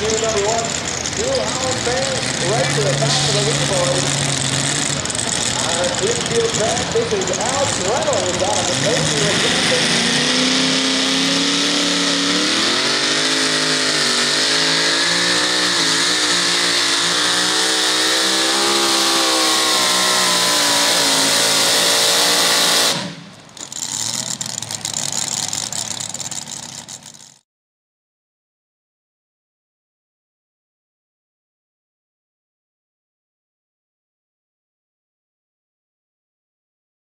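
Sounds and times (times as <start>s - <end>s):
low crackling engine: 0.0s - 10.2s, 22.8s - 27.4s
supercharged engine at full throttle: 0.0s - 27.4s.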